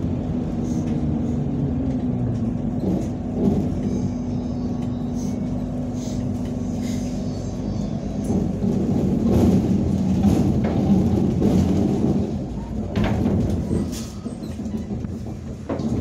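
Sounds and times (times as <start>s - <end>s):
trolleybus rumbling over road: 0.0s - 16.0s
bodywork knocks and rattles: 8.3s - 16.0s.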